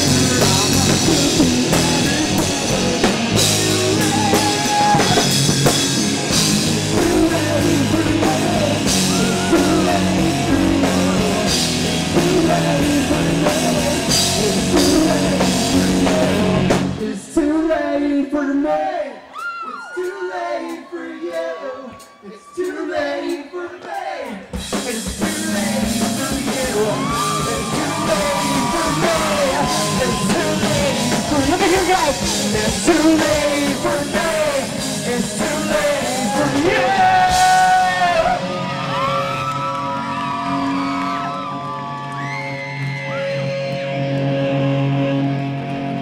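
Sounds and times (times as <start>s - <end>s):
person singing: 0.0s - 5.4s, 6.6s - 40.1s
electric guitars: 0.0s - 17.2s, 24.7s - 46.0s
drum kit: 0.0s - 17.4s, 24.2s - 42.4s.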